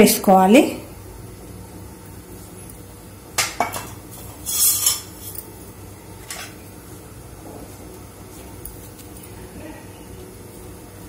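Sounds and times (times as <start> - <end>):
utensils clattering: 3.4 - 5.5, 6.2 - 6.6.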